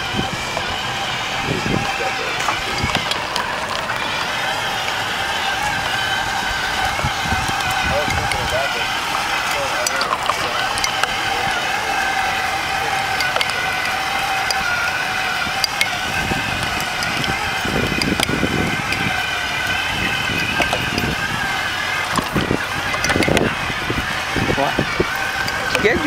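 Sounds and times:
electric drive whining: 0.0 - 26.0
wind buffeting microphone: 0.0 - 26.0.

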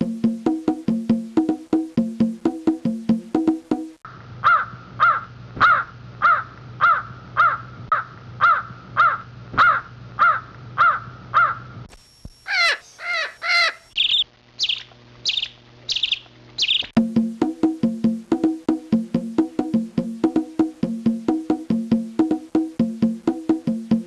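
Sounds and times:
harsh bird calls: 12.5 - 17.0.

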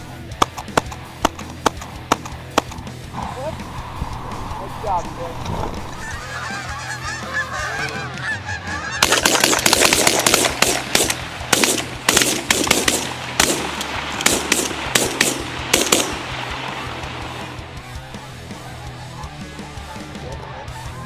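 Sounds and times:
geese honking: 0.9 - 21.0
shotgun blasts: 9.0 - 16.7.

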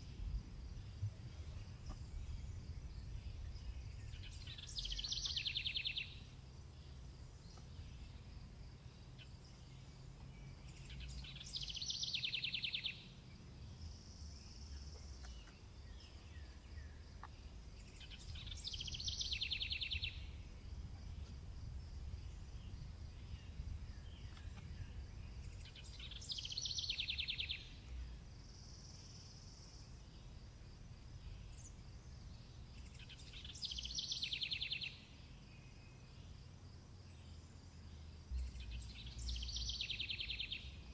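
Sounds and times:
faint low rumble: 0.0 - 34.1, 35.1 - 40.9
songbird trilling: 3.3 - 8.1, 10.7 - 13.1, 14.6 - 20.3, 25.4 - 27.8, 32.8 - 35.0, 38.4 - 40.8.

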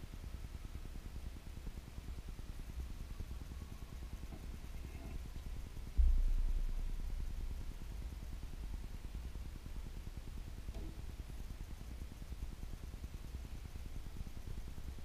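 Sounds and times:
sudden thump: 6.0 - 6.7.

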